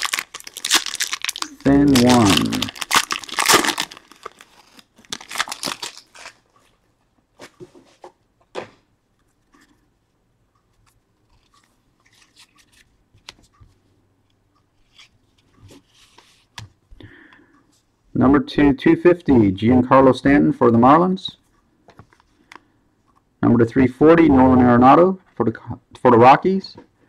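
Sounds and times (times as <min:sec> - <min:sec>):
card pack wrapper tearing: 0:00.0 - 0:06.4
cards rustling and ticking: 0:00.0 - 0:06.8, 0:10.7 - 0:13.8.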